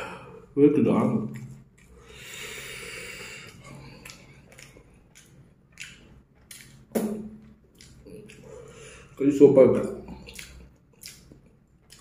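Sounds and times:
man chewing with mouth clicks: 0:01.2 - 0:09.2, 0:09.8 - 0:12.0.

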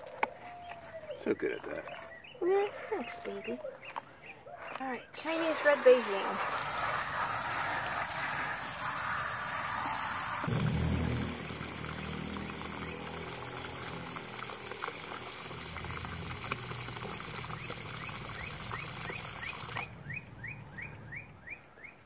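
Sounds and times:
hose water churning and bubbling: 0:00.0 - 0:20.0.

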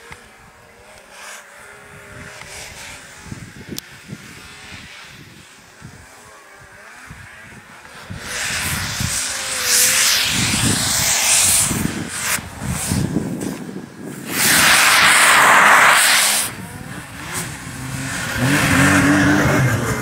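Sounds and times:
snowmobile engine revving: 0:00.0 - 0:20.0
loud rushing hiss: 0:08.1 - 0:20.0.

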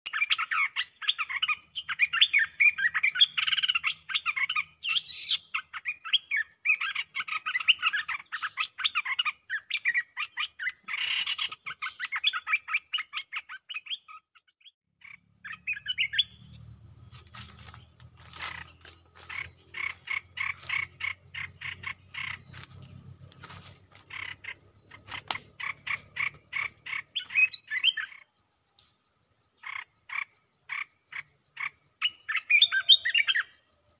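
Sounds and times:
bulbul song: 0:00.1 - 0:33.9
insect buzz: 0:14.9 - 0:33.9.

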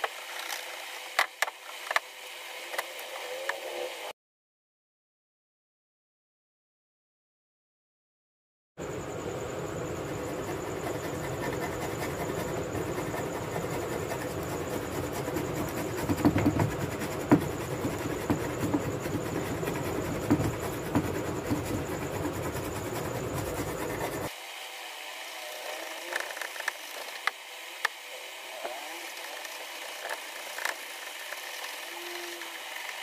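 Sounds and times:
blade scraping wood: 0:10.1 - 0:24.3, 0:28.6 - 0:33.0.

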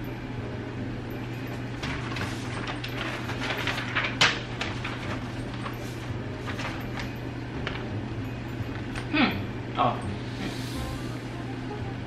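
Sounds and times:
steady low hum: 0:00.0 - 0:12.0
paper handling: 0:01.8 - 0:07.9.

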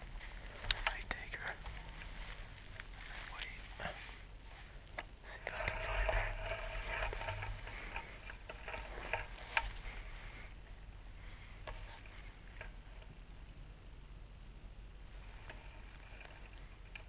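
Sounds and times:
small clicks and ticks: 0:00.0 - 0:03.6, 0:04.8 - 0:10.0, 0:11.6 - 0:13.6, 0:15.2 - 0:17.0
handling rustling: 0:00.0 - 0:10.6
breathy hiss: 0:00.0 - 0:12.6.

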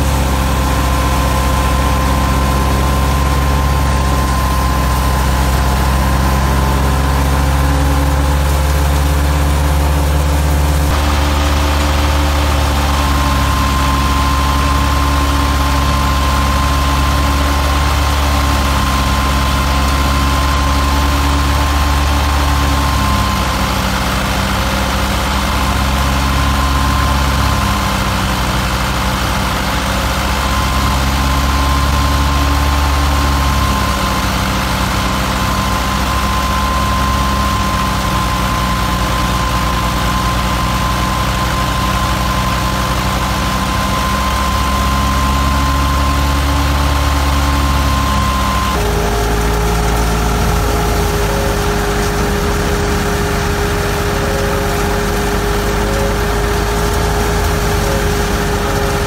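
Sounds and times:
diesel tractor engine running: 0:00.0 - 0:59.0
high-pitched whine: 0:00.0 - 0:59.0.

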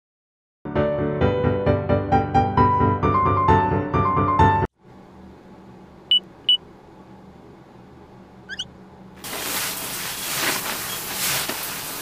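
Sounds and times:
shower head spraying water: 0:09.2 - 0:12.0.

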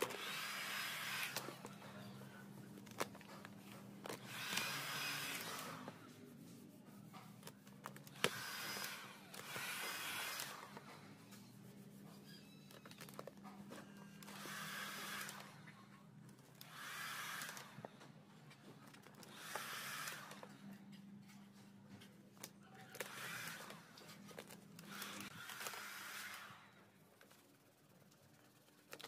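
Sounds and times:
heat gun blowing: 0:00.0 - 0:01.6, 0:04.2 - 0:05.9, 0:08.2 - 0:10.7, 0:14.2 - 0:15.5, 0:16.7 - 0:17.7, 0:19.3 - 0:20.4, 0:24.9 - 0:26.7.

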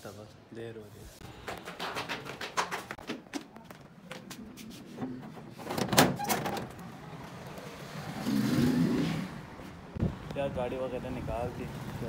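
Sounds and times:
sandal footsteps down stairs: 0:01.2 - 0:04.4.

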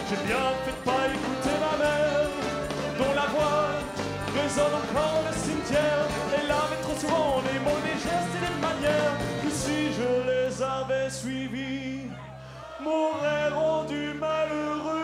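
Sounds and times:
live folk-rock band playing: 0:00.0 - 0:11.0.

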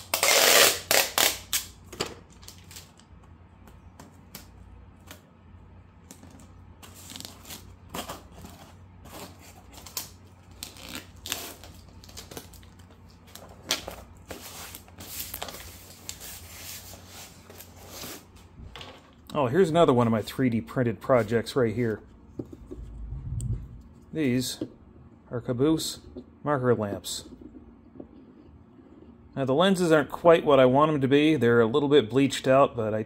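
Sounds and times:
packing material crinkling: 0:06.2 - 0:18.2.

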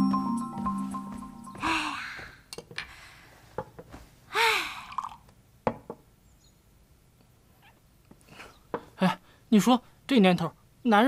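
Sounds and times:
breathy sigh: 0:01.6 - 0:03.4, 0:04.3 - 0:05.0.

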